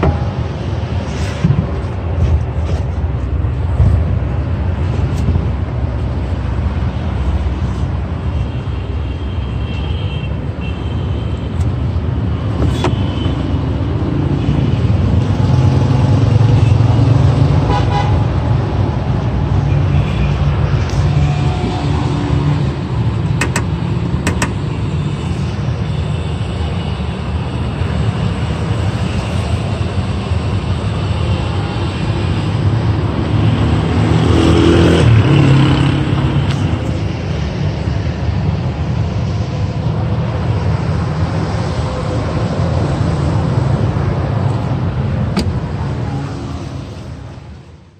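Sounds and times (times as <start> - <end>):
road traffic noise: 0.0 - 47.9.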